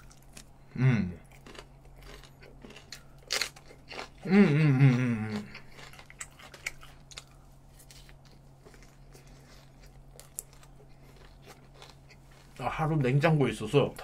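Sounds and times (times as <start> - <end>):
man humming: 0.7 - 1.3, 4.2 - 5.6
chewing and mouth clicks: 1.2 - 12.6.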